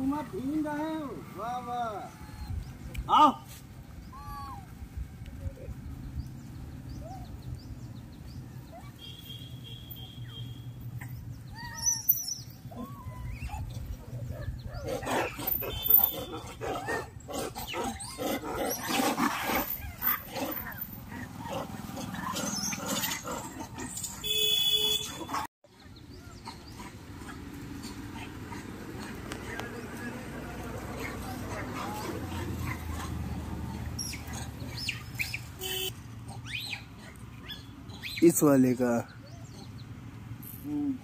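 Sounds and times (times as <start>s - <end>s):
monkeys calling harshly: 11.1s - 24.3s, 25.0s - 38.5s, 39.1s - 39.8s.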